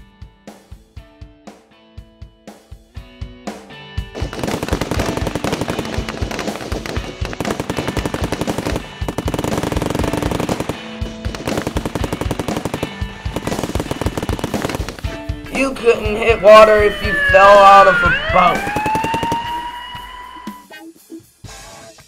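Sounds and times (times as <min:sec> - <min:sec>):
background music: 0:00.0 - 0:22.0
rapid machine-gun fire: 0:04.1 - 0:15.2, 0:18.5 - 0:19.7.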